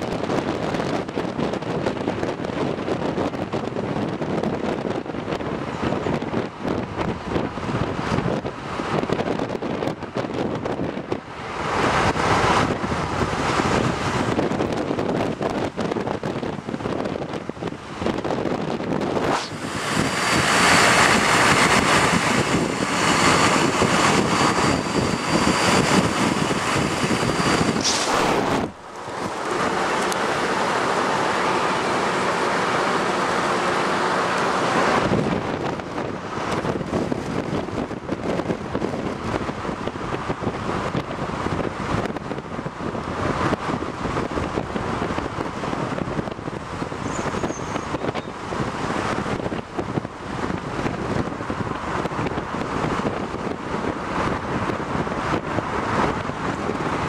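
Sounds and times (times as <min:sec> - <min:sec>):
car road and engine noise: 0:00.0 - 0:57.0
wind rushing over microphone: 0:00.0 - 0:57.0
thin high whine: 0:19.1 - 0:35.0.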